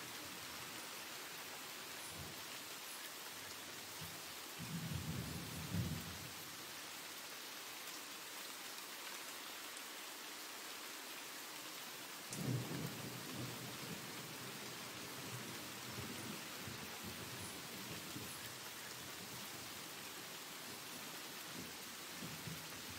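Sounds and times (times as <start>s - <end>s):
steady rain: 0.0s - 22.9s.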